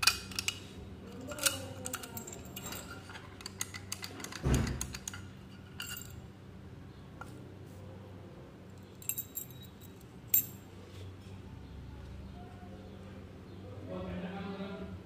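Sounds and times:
keys clinking: 0:00.0 - 0:06.2, 0:08.8 - 0:10.6
metallic clicks of key in lock: 0:00.0 - 0:06.2.

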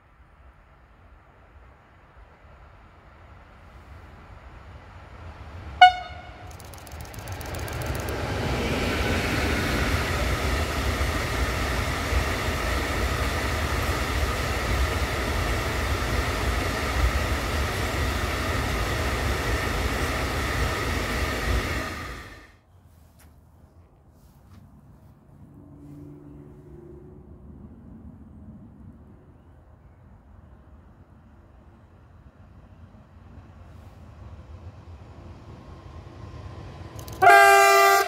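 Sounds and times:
train wheels rumbling on rail: 0:00.4 - 0:22.6, 0:31.1 - 0:38.0.

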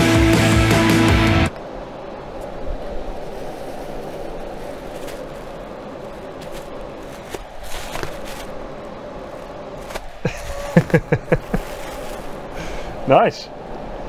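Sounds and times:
air rushing through duct: 0:01.5 - 0:14.0
card tapping and rustling: 0:06.4 - 0:08.6.

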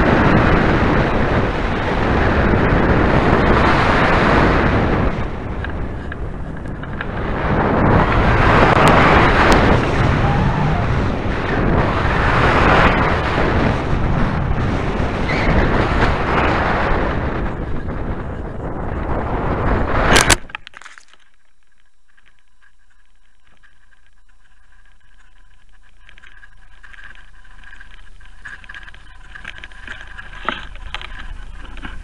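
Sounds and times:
wind rushing over microphone: 0:00.0 - 0:20.6.

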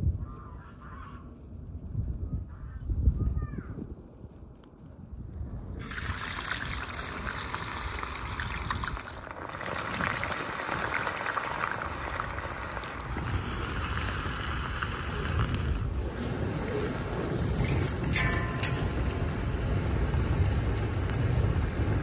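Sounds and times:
wood fire rumbling: 0:05.0 - 0:22.0
fries sizzling in hot oil: 0:05.8 - 0:15.9.

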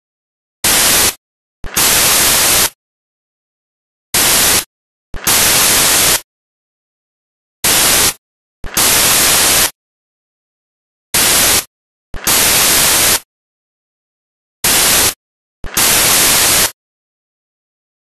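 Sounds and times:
white-noise static bursts: 0:00.6 - 0:02.8, 0:04.2 - 0:06.3, 0:07.6 - 0:09.8, 0:11.2 - 0:13.3, 0:14.6 - 0:16.8.

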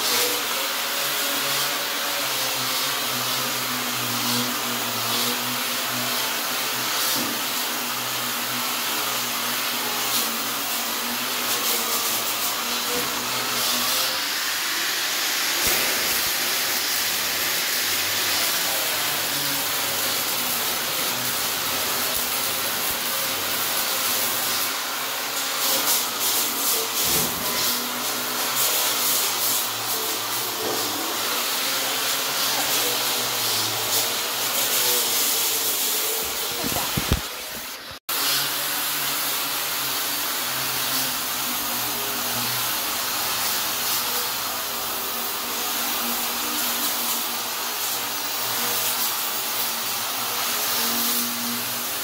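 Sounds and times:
machine hiss: 0:13.0 - 0:24.6.

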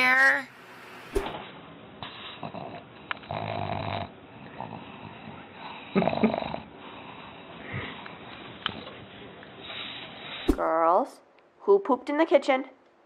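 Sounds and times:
dog snoring: 0:02.1 - 0:08.1
dog breathing noisily: 0:02.1 - 0:09.0.

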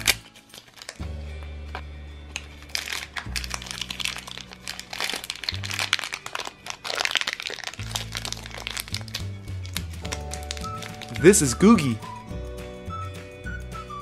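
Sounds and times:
wrapper crinkling: 0:00.0 - 0:01.1, 0:02.3 - 0:12.0
wrapper tearing: 0:00.0 - 0:01.1, 0:02.3 - 0:12.0
background music low notes: 0:00.0 - 0:14.0.

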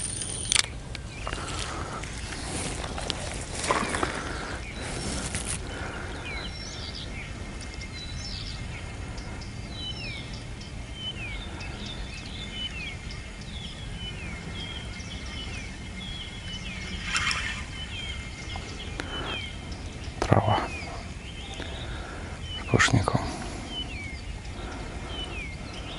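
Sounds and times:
small songbirds chirping: 0:00.0 - 0:25.9
steady low rumble: 0:00.0 - 0:25.9
brief rustle: 0:04.9 - 0:05.6.

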